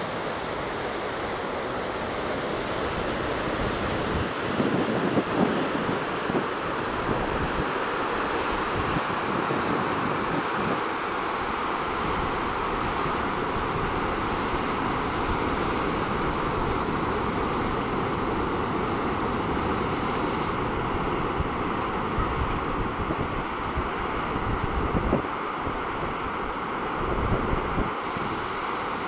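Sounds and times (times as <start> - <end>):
surf washing over rocks: 0.0 - 29.0
wind buffeting microphone: 2.4 - 29.0.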